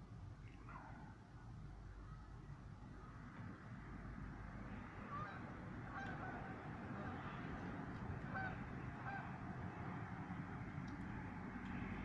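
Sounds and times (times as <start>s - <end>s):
steady low rumble: 0.0s - 12.0s
geese honking: 5.1s - 7.4s, 8.3s - 9.4s.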